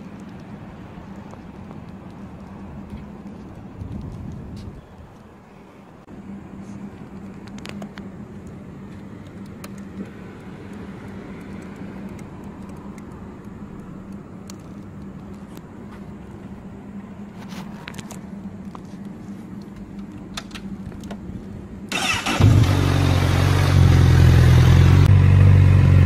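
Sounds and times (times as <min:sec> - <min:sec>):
sharp clicks: 0:09.2 - 0:15.7.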